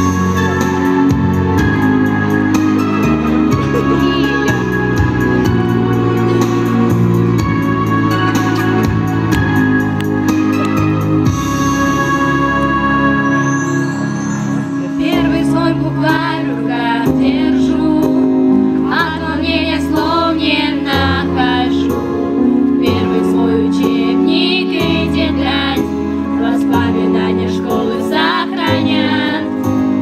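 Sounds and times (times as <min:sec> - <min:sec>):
instrumental accompaniment: 0:00.0 - 0:30.0
girls singing together: 0:15.0 - 0:22.0, 0:22.8 - 0:29.7.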